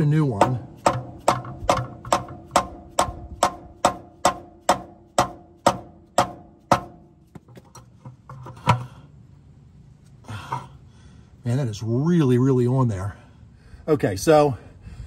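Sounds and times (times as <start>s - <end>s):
hammer knocking on metal wrench: 0.3s - 7.6s.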